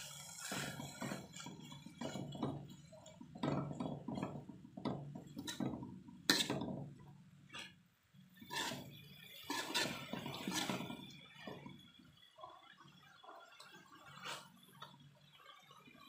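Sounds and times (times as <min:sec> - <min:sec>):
metal spoon scraping a wok: 0:05.4 - 0:05.7, 0:06.3 - 0:06.6, 0:08.4 - 0:11.1, 0:14.1 - 0:14.6.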